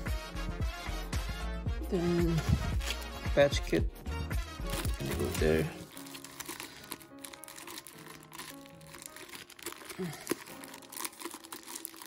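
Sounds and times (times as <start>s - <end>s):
background music: 0.0s - 12.0s
plastic wrappers crinkling: 2.2s - 3.2s, 4.6s - 12.0s.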